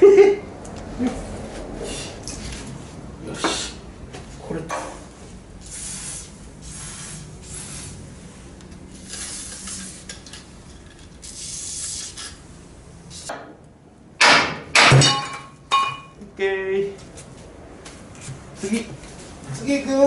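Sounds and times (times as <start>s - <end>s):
aerosol spray can hissing: 5.6s - 8.0s, 11.2s - 12.3s
tools knocking against frame: 14.2s - 16.1s.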